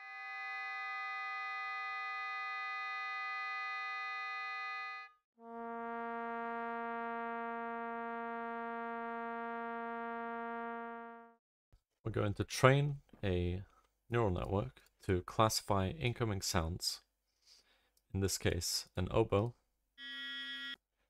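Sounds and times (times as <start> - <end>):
oboe long tone: 0.0 - 11.3
trombone long tone: 5.4 - 11.4.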